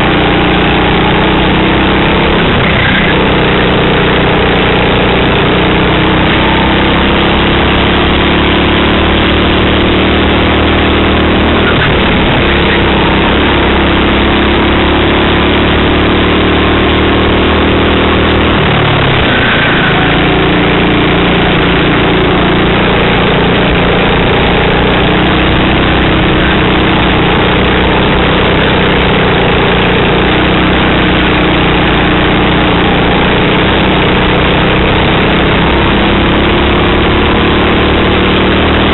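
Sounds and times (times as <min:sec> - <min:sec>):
kart engine running hard: 0:00.0 - 0:38.9.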